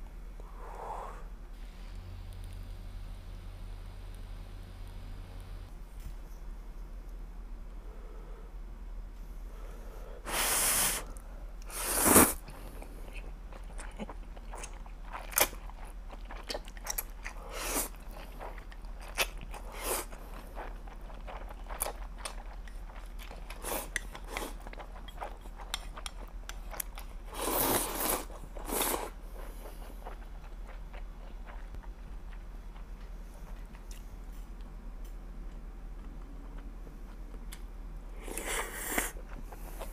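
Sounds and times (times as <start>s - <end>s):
person slurping noodles: 11.7s - 12.4s, 27.3s - 29.1s, 38.2s - 39.2s
chewing: 12.6s - 34.7s.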